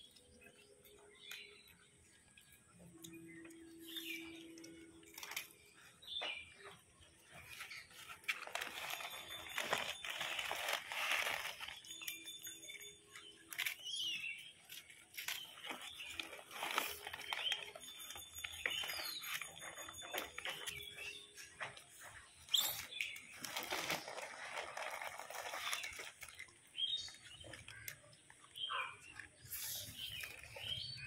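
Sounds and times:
high bird chirps: 0:00.0 - 0:06.8, 0:11.6 - 0:23.6, 0:25.5 - 0:31.0.

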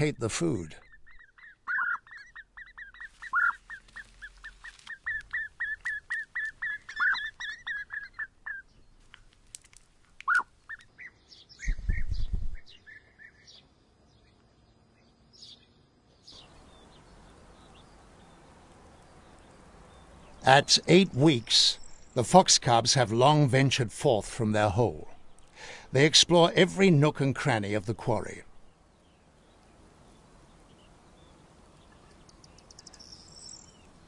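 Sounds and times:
nestlings chirping: 0:00.0 - 0:14.4, 0:15.0 - 0:22.3, 0:28.5 - 0:34.0
crickets chirping: 0:21.2 - 0:22.2, 0:30.0 - 0:33.8.

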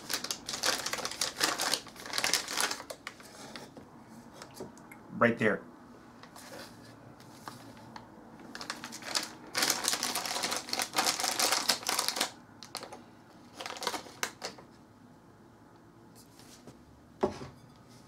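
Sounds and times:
plastic bag crinkling: 0:00.0 - 0:03.3, 0:08.5 - 0:14.6.

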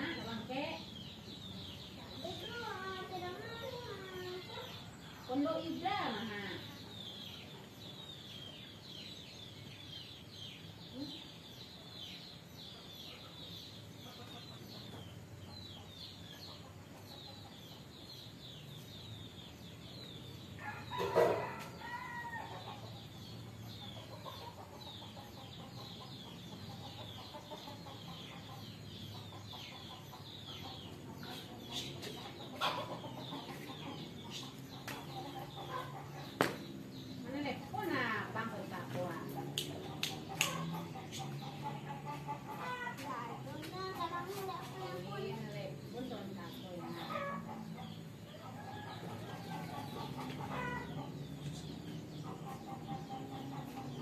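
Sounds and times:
small birds chirping: 0:00.0 - 0:54.0
chickens clucking: 0:19.5 - 0:54.0.

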